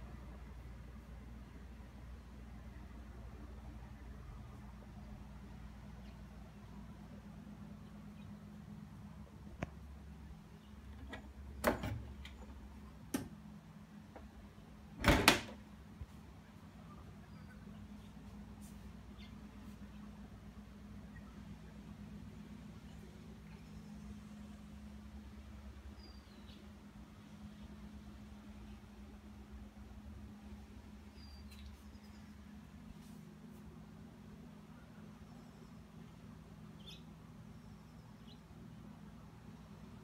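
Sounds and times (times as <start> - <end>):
faint low hum: 0.0 - 40.0
dishwasher door thumping shut: 15.0 - 15.5.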